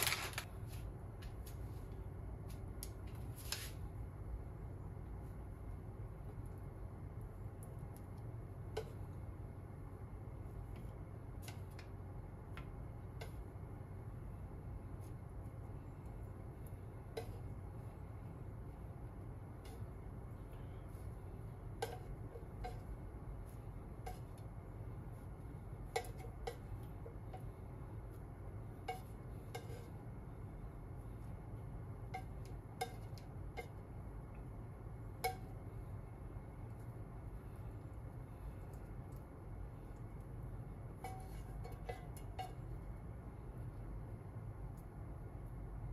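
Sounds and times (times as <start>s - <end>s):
low steady hum: 0.0s - 45.9s
chopsticks tapping dishes: 21.6s - 24.6s, 25.7s - 27.7s, 28.8s - 30.0s, 32.0s - 34.0s, 35.1s - 35.6s, 41.0s - 43.0s.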